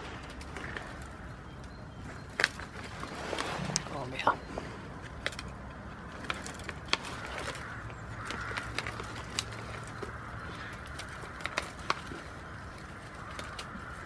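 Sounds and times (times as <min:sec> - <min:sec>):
goat chewing twigs: 0:04.9 - 0:14.0.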